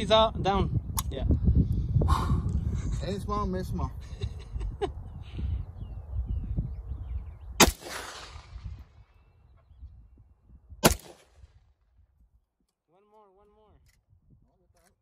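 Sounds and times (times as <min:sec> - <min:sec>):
rifle shots with echo: 0:07.6 - 0:09.0, 0:10.8 - 0:11.6.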